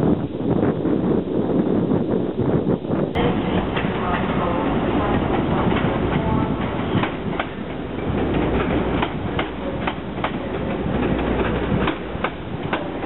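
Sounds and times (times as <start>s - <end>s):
train rumble: 0.0s - 13.0s
train wheels clicking over rail joints: 3.2s - 13.0s.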